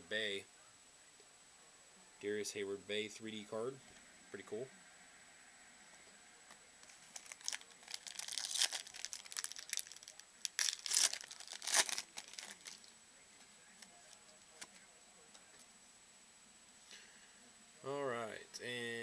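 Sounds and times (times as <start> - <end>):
plastic wrapper crinkling: 6.8 - 12.9.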